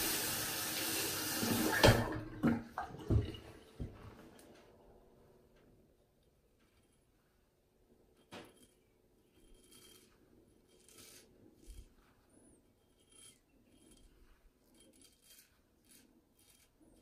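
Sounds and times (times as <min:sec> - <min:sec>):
blade scraping stubble: 0:08.2 - 0:17.0.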